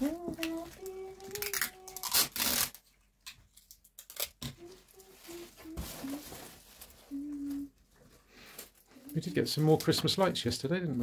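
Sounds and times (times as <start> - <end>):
person humming: 0.0 - 2.5, 4.5 - 7.8
wrapping paper rustling and tearing: 0.0 - 7.7, 8.4 - 10.1.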